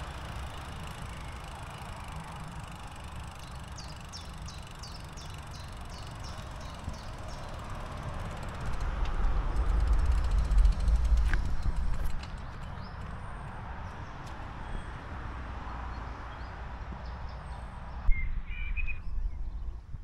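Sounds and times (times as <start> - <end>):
bicycle riding on path: 0.0 - 18.0
deep rumble: 8.4 - 13.0.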